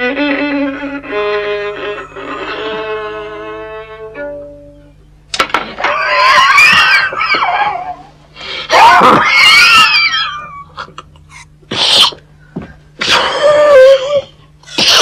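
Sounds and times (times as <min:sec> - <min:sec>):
man sneezing: 0:14.7 - 0:15.0.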